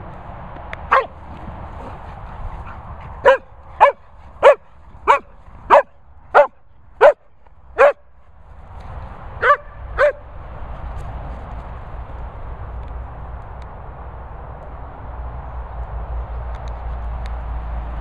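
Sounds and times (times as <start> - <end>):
dog barking: 0.9 - 1.2, 2.6 - 8.1, 9.4 - 10.3.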